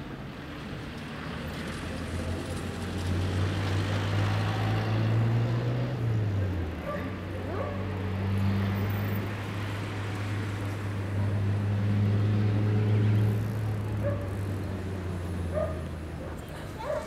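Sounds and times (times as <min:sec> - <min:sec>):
car passing: 0:00.6 - 0:17.0
vehicle engine humming: 0:01.7 - 0:17.0.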